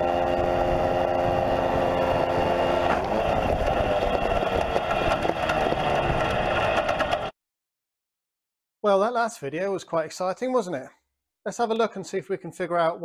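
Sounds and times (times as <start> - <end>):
rattling clatter: 2.9 - 7.3.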